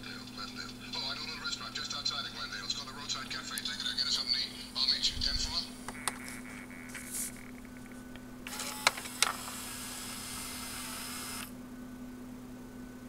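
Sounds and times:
disc drive motor whirring: 5.2 - 11.6.

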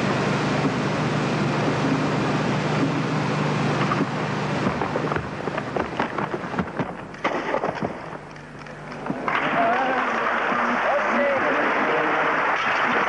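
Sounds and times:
tape hiss and hum: 0.0 - 13.0
sharp cracks and knocks: 3.8 - 9.6.

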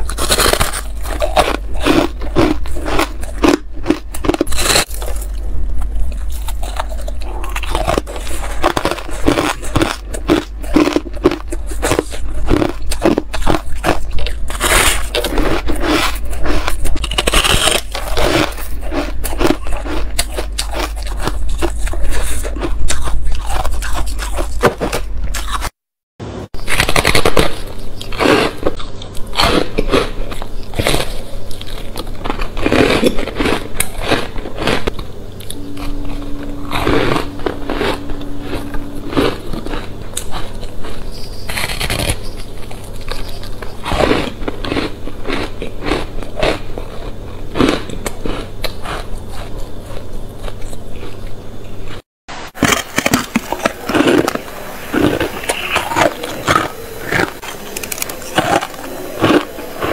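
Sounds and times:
ice crunching: 0.0 - 5.4.

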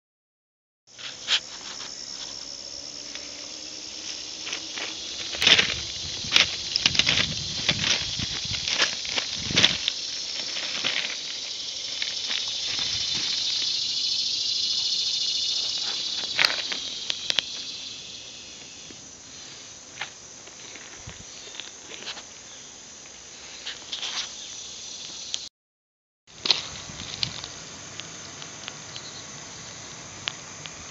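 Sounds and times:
footsteps on gravel: 0.9 - 13.9, 15.4 - 17.8, 18.6 - 22.3, 26.3 - 27.6
insect drone: 0.9 - 25.5, 26.3 - 30.9.

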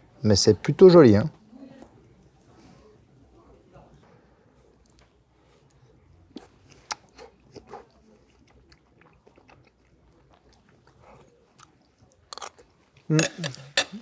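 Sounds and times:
person chewing pastry: 4.6 - 13.8.

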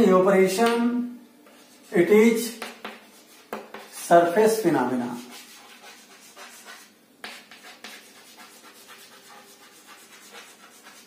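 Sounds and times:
chalk scratching on chalkboard: 1.5 - 11.0
chalk tap: 2.5 - 4.0, 5.2 - 11.0.

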